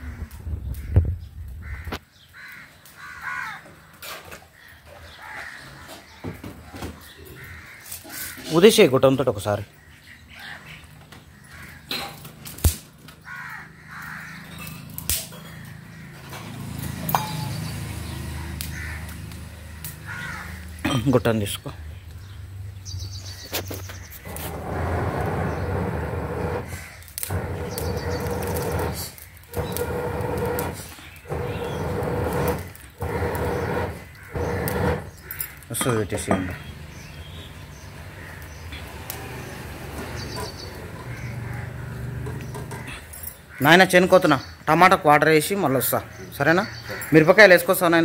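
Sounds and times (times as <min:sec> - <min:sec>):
fire cracking: 0:00.0 - 0:04.1, 0:10.8 - 0:22.3, 0:22.9 - 0:47.9
crows cawing: 0:00.0 - 0:08.6, 0:09.8 - 0:12.2, 0:13.1 - 0:16.7, 0:18.4 - 0:21.0, 0:23.3 - 0:44.1, 0:46.0 - 0:47.9
blowing through metal pipe: 0:24.3 - 0:35.5.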